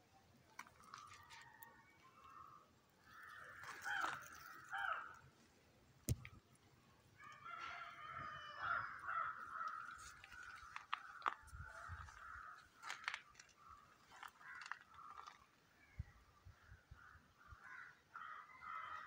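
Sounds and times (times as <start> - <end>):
rooster crowing: 7.2 - 9.6.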